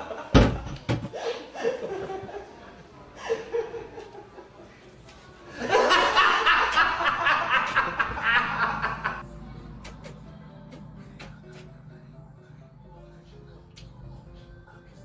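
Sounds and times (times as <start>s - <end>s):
person laughing heartily: 0.0s - 4.8s, 5.5s - 9.2s.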